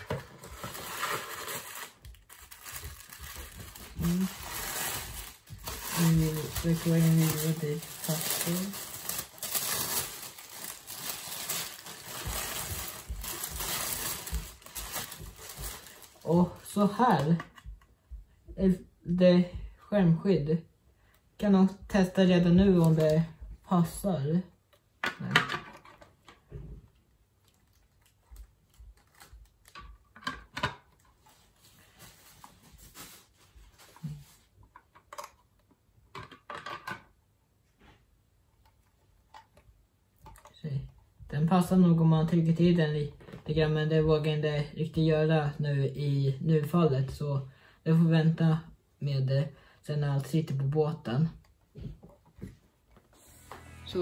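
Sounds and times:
paper crinkling and rustling: 0:00.0 - 0:17.3, 0:31.0 - 0:34.6.

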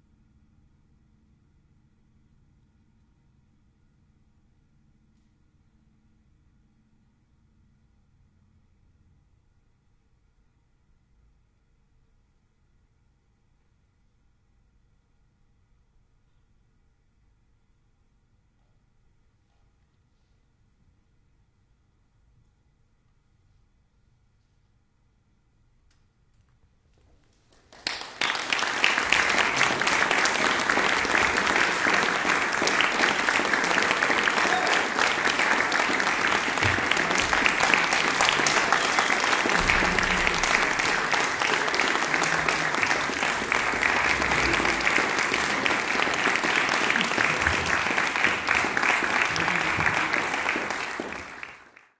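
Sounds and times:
audience applause: 0:27.5 - 0:51.9.

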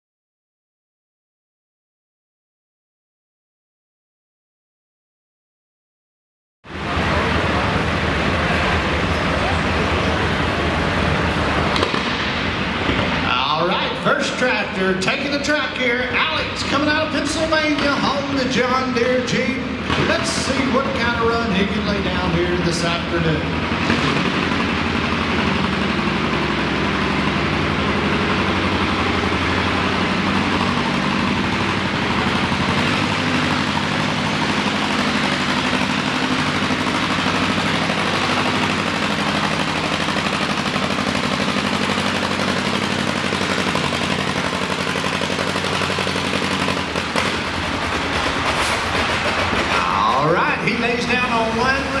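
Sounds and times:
tractor engine popping under load: 0:23.8 - 0:51.8.

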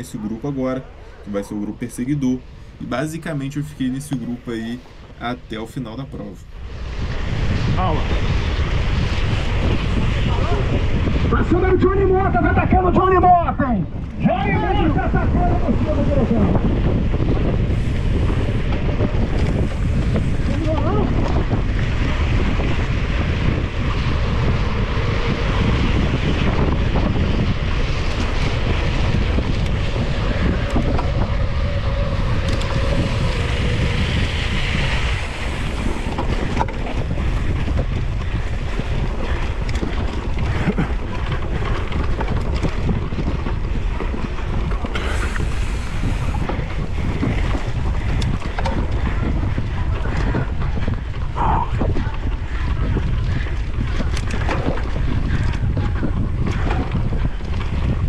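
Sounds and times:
bike tyre noise: 0:00.0 - 0:58.0
wind on microphone: 0:00.0 - 0:58.0
bike knocks and rattles: 0:18.2 - 0:58.0.

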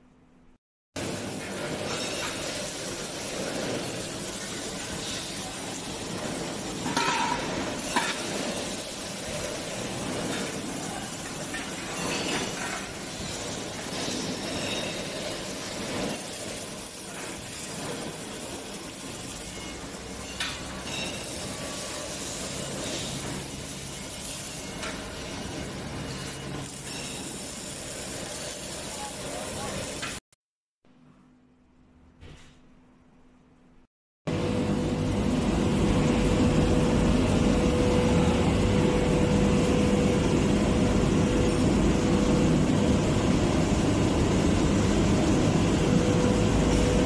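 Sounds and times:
welding crackling hiss: 0:01.0 - 0:30.2.

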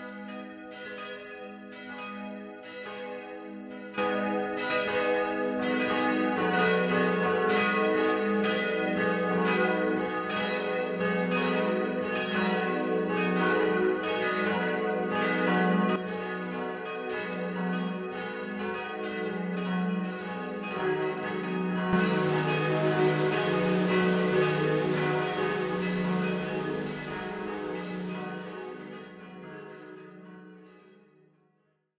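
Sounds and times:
church bells pealing: 0:19.4 - 0:29.9.

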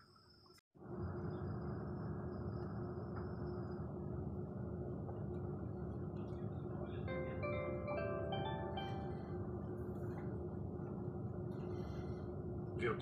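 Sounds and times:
train cabin rumble: 0:00.8 - 0:13.0
announcement chime bell-like notes: 0:07.1 - 0:09.4.

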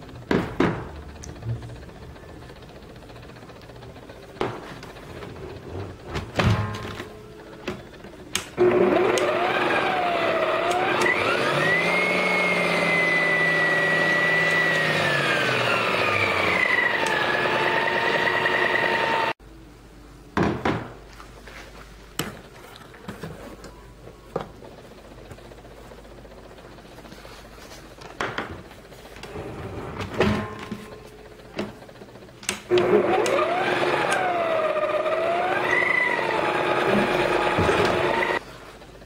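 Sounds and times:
electric stand mixer motor whine: 0:00.0 - 0:06.3, 0:06.9 - 0:19.4, 0:30.4 - 0:38.8.

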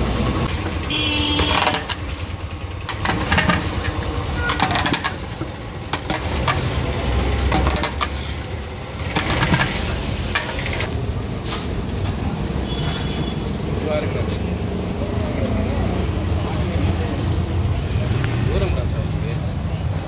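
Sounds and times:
knocks and clattering: 0:00.4 - 0:08.2, 0:09.0 - 0:12.2.

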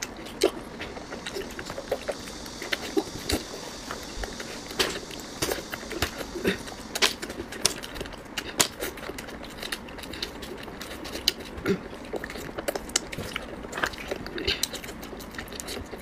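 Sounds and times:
chewing: 0:00.0 - 0:16.0.

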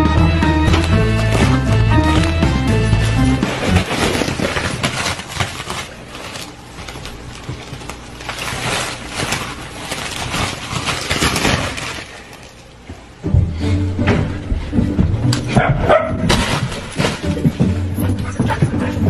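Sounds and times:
plastic wrap crinkling: 0:00.6 - 0:13.0.

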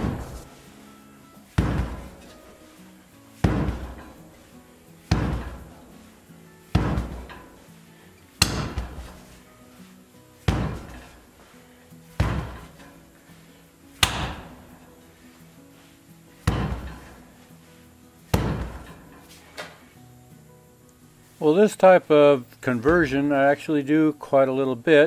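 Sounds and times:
wheel striking concrete floor: 0:00.0 - 0:00.6, 0:01.5 - 0:02.4, 0:03.4 - 0:04.4, 0:05.0 - 0:05.9, 0:06.7 - 0:07.7, 0:08.4 - 0:09.4, 0:10.4 - 0:11.3, 0:12.1 - 0:13.1, 0:14.0 - 0:14.7, 0:16.4 - 0:17.3, 0:18.3 - 0:19.9.

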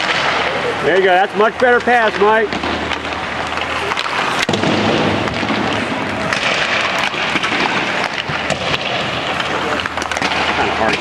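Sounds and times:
sticks and pucks clacking: 0:00.0 - 0:11.0
skates scraping on ice: 0:01.8 - 0:11.0.

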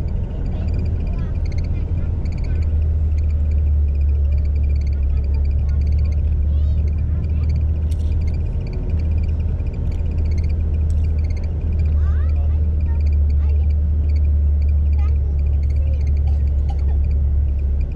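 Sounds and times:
bus engine rumbling: 0:00.0 - 0:17.9
high-pitched chirps: 0:08.2 - 0:11.9.

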